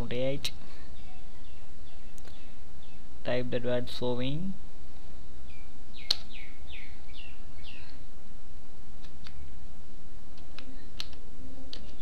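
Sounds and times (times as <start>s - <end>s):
steady low hum: 0.0s - 12.0s
small bird chirping: 0.2s - 3.5s, 5.4s - 8.1s, 9.2s - 9.7s
mouse click: 6.0s - 6.3s.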